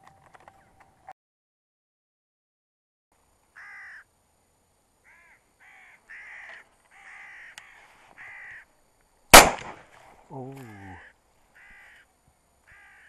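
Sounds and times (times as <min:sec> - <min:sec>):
crow cawing: 0:03.6 - 0:04.1, 0:05.0 - 0:08.7, 0:10.4 - 0:13.0.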